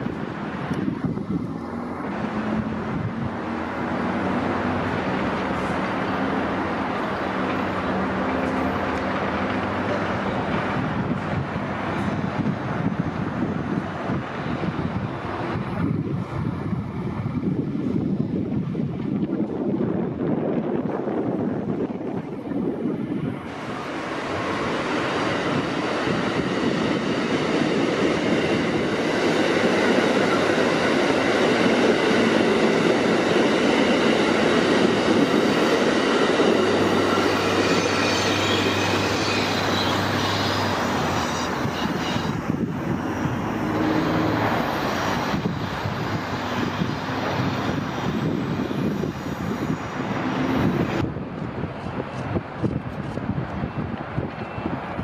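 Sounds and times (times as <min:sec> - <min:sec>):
train wheels on rails: 0:00.0 - 0:55.0
high steady squealing: 0:34.8 - 0:51.0.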